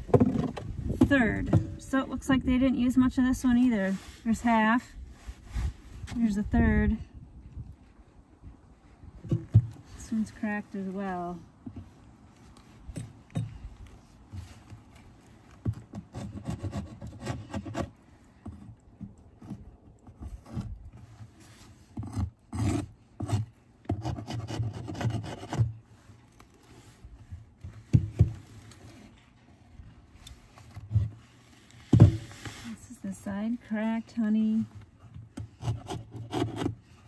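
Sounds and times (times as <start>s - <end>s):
metal tool scraping wood: 15.9s - 25.8s, 35.4s - 37.0s.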